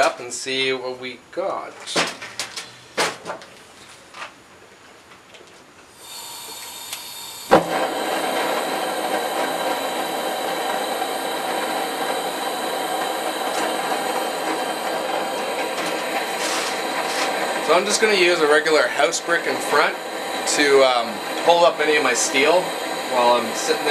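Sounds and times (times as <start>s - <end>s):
gas hissing: 0.0s - 3.0s, 5.9s - 23.9s
burner igniting pop: 6.0s - 23.9s
burner rushing flame: 6.0s - 23.9s.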